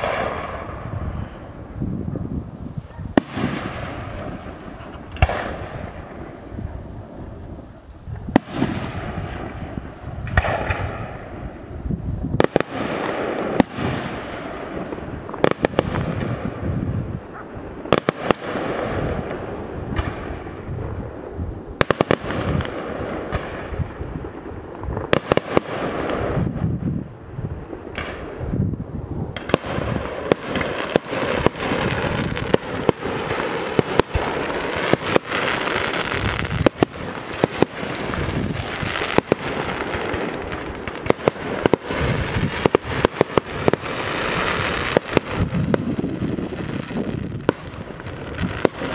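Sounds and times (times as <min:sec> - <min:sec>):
firework bangs: 0:00.0 - 0:48.9
continuous crackling: 0:02.7 - 0:11.2, 0:29.3 - 0:48.9.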